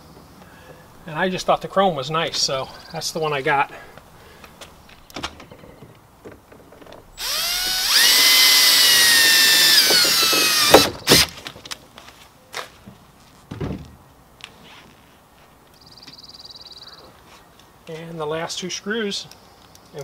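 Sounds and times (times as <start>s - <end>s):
handling clicks and knocks: 3.9s - 7.1s
cordless drill whining: 7.1s - 11.3s.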